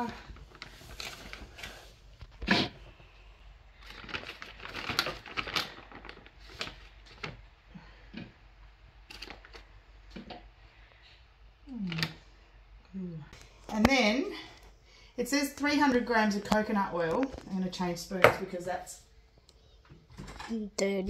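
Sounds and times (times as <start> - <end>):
plastic bag crinkling: 3.7 - 7.5.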